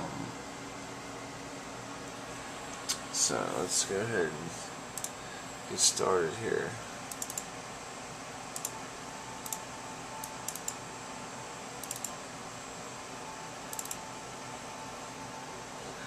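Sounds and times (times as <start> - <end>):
steady background hum: 0.0 - 16.0
computer mouse clicking: 5.0 - 5.2, 7.1 - 7.5, 8.6 - 8.8, 9.4 - 9.6, 10.2 - 10.8, 11.8 - 12.2, 13.7 - 14.0.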